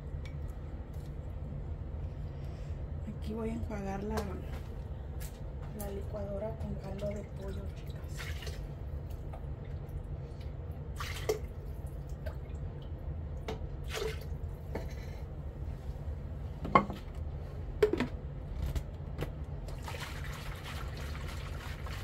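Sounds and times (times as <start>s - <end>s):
steady low hum: 0.0s - 22.0s
liquid dripping and splashing: 6.7s - 14.6s.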